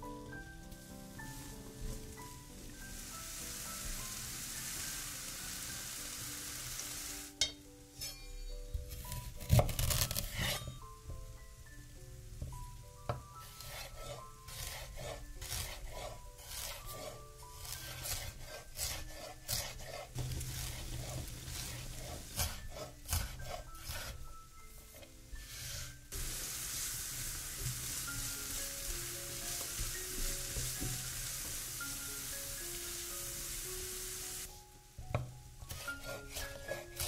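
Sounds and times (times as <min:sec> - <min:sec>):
onion sizzling in frying pan: 0:00.0 - 0:08.1, 0:08.8 - 0:37.0
soft mallet percussion music: 0:07.3 - 0:09.4, 0:27.4 - 0:37.0
knife chopping on wooden board: 0:17.6 - 0:24.1.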